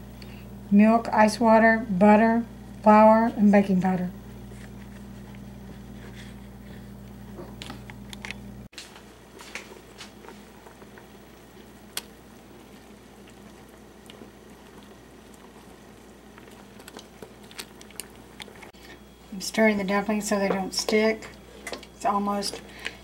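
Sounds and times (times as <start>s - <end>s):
steady low hum: 0.0s - 23.0s
broth bubbling at rolling boil: 9.2s - 23.0s.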